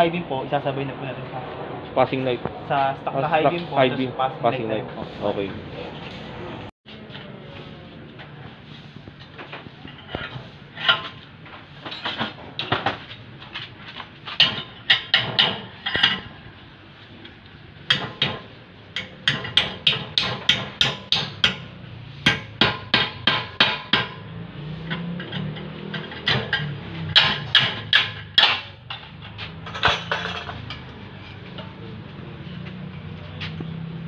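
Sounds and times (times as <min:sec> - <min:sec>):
hammer striking metal: 0:17.9 - 0:24.3, 0:25.0 - 0:28.8.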